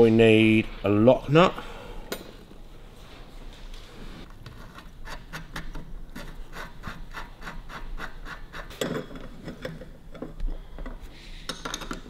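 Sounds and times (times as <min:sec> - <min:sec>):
metal threads rasping: 0:04.9 - 0:12.0.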